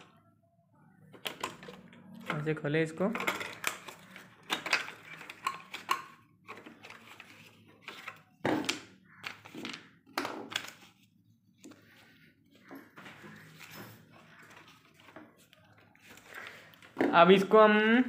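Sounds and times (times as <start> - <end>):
plastic clicks and knocks: 8.4 - 10.8.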